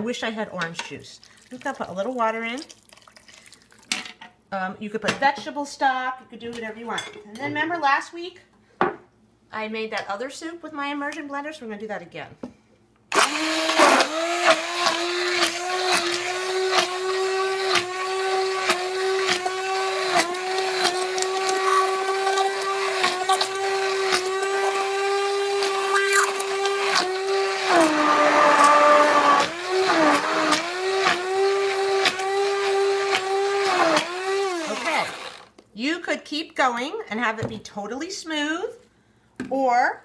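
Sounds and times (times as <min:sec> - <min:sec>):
immersion blender motor humming: 0:13.1 - 0:35.5.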